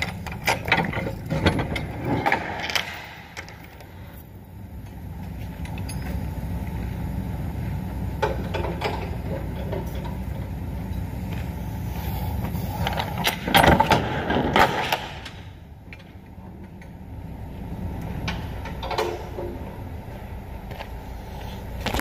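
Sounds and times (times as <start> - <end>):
sharp knocks and rattles: 0.0 - 4.0.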